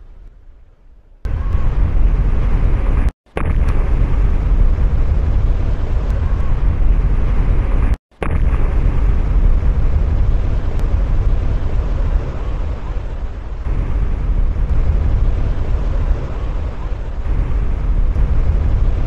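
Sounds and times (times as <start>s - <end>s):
floodwater rushing: 11.2s - 19.0s.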